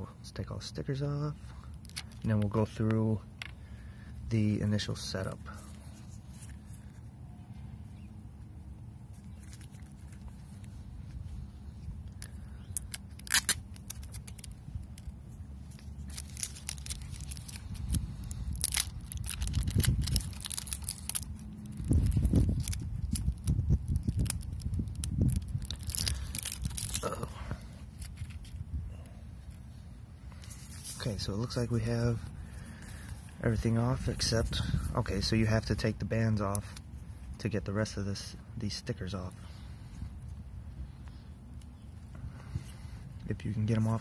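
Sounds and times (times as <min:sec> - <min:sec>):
plastic film peeling: 0:01.5 - 0:02.6, 0:09.1 - 0:28.7
hands handling watch rumble: 0:01.6 - 0:03.6, 0:09.0 - 0:28.8.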